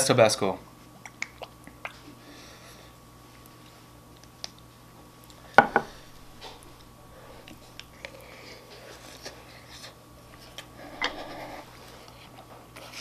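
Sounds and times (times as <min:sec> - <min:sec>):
bottle knocking on wooden table: 0:05.6 - 0:05.9.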